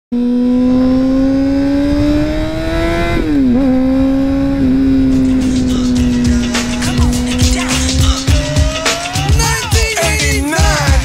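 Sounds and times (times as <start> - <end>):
motorcycle engine at high revs: 0.1 - 9.7
wind rumble on microphone: 1.1 - 5.9.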